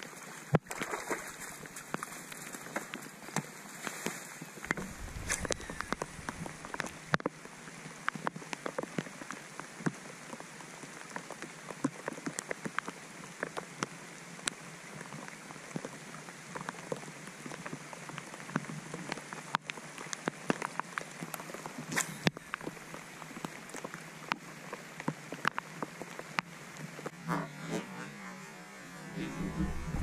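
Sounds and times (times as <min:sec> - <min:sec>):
rain falling on water: 0:00.0 - 0:27.6
sharp ticks of raindrops: 0:04.7 - 0:27.2.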